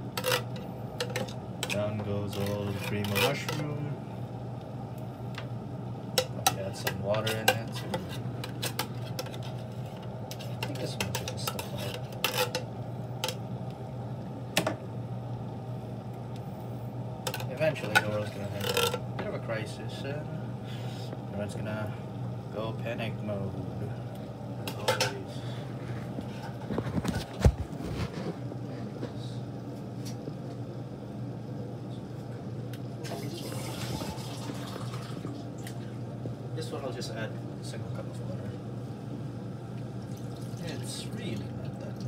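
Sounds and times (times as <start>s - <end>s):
steady low hum: 0.0s - 42.0s
utensil scraping soup from can: 0.2s - 3.8s, 7.1s - 12.6s.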